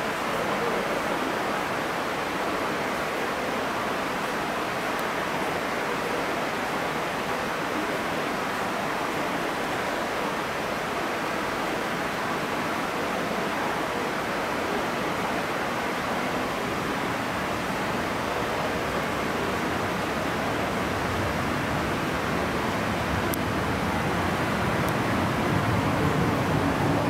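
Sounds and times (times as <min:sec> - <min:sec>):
metro platform rushing noise: 0:19.1 - 0:27.0.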